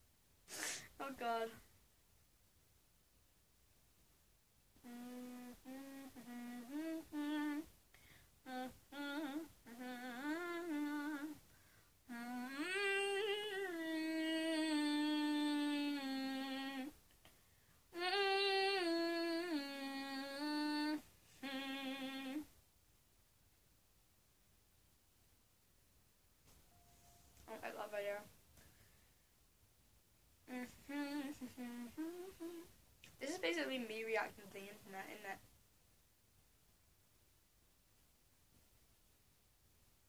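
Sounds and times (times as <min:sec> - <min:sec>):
woman humming a tune: 0:04.8 - 0:07.7, 0:08.4 - 0:11.4, 0:12.1 - 0:17.0, 0:17.9 - 0:22.5, 0:30.5 - 0:33.6.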